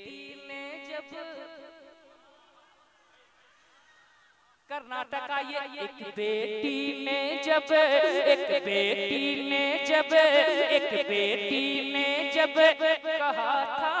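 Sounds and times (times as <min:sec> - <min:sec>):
man singing into a microphone: 0:04.7 - 0:14.0.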